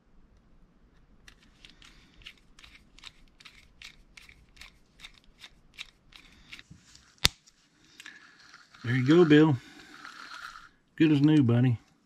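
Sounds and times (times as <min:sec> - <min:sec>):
screwdriver scraping clicks: 0:01.3 - 0:07.3.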